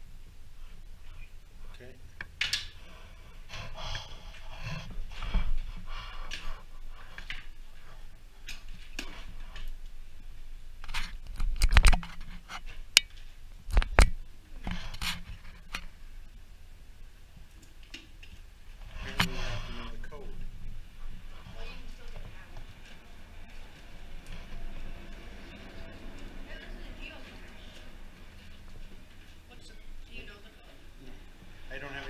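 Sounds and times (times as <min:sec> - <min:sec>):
metal scraping: 0:18.8 - 0:20.4.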